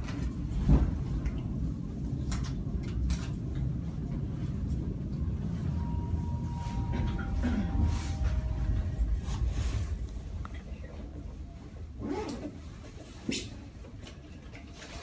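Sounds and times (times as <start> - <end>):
funicular car rumbling: 0.0 - 15.0
faint high tone: 5.6 - 11.8.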